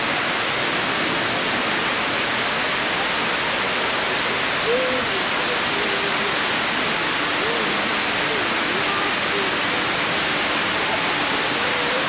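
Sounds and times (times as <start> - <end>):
loud steady rushing noise: 0.0 - 12.0
faint voice: 3.8 - 12.0.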